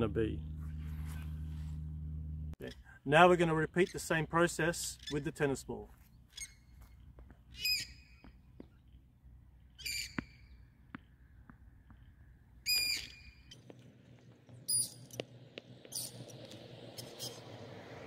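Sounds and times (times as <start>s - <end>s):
bird calling: 7.5s - 8.9s
tennis ball bouncing on concrete: 10.0s - 12.0s.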